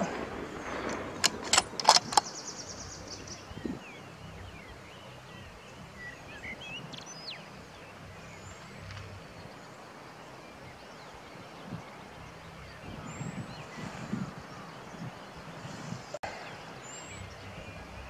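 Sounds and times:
sharp clicks: 0:00.0 - 0:02.4.

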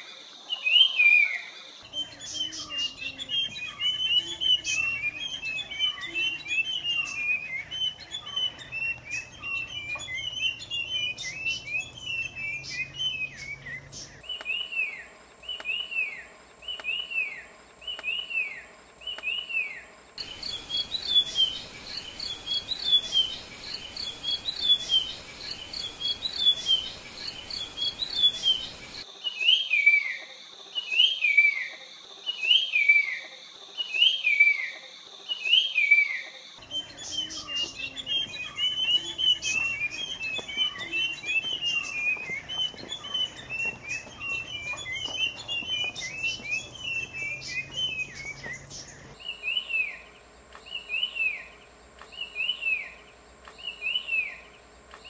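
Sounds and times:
bird whistled song: 0:00.5 - 0:30.2, 0:30.8 - 0:55.0
high-pitched whine: 0:02.0 - 0:29.0.

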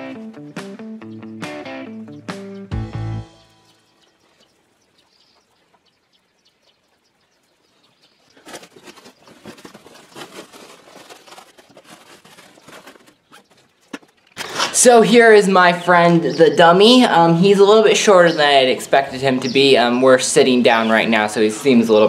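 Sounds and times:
guitar music: 0:00.0 - 0:03.9
fabric rustling and crackling: 0:08.3 - 0:14.4.

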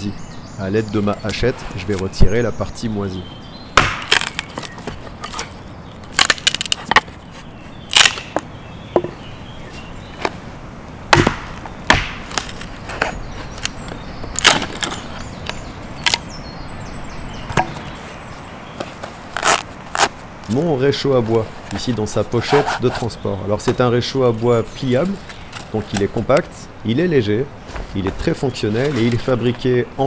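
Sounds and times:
hatchet chopping wood: 0:03.8 - 0:05.4, 0:07.9 - 0:09.2, 0:11.1 - 0:12.6.

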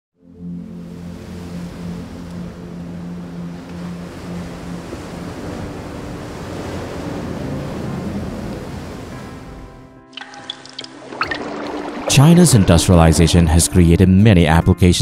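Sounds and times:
low held music notes: 0:00.2 - 0:10.1
waterfall rushing: 0:10.2 - 0:12.9.

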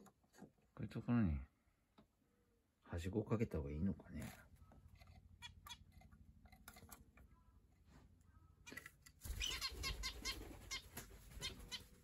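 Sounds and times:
small birds chirping: 0:03.8 - 0:12.0.

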